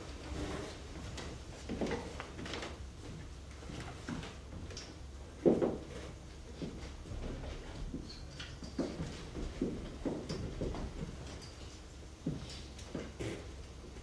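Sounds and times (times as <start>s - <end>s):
footsteps on stage floor: 8.8s - 11.2s.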